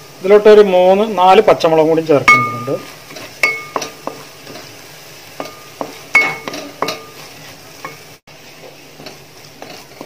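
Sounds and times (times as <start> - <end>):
onions sizzling in oil: 0.0 - 10.0
spatula scraping pot: 2.4 - 10.0
spatula knocking against pot: 3.4 - 4.2.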